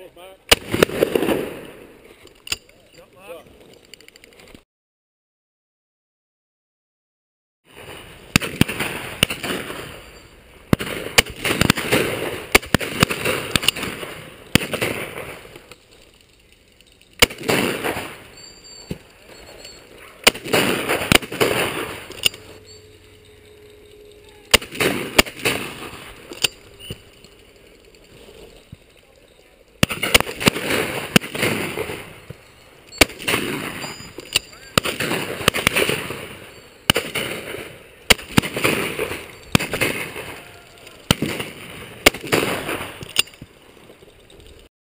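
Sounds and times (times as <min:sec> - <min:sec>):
shotgun shots echoing: 0:00.5 - 0:01.9, 0:08.3 - 0:10.1, 0:10.7 - 0:15.6, 0:17.2 - 0:18.3, 0:20.2 - 0:22.6, 0:24.5 - 0:27.1, 0:29.8 - 0:40.4, 0:41.0 - 0:43.1.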